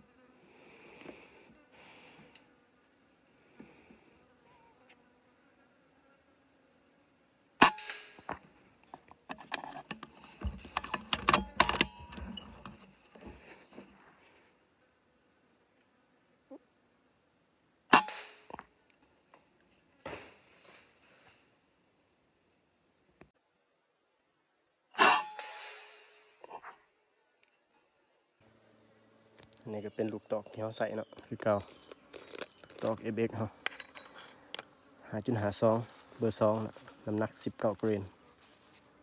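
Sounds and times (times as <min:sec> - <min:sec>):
air rifle shots: 0:07.6 - 0:08.3, 0:17.9 - 0:18.5, 0:25.0 - 0:26.2
clicking and rattling handling noise: 0:08.2 - 0:13.4, 0:31.1 - 0:33.0, 0:33.6 - 0:34.7
high-pitched insect drone: 0:25.0 - 0:27.6.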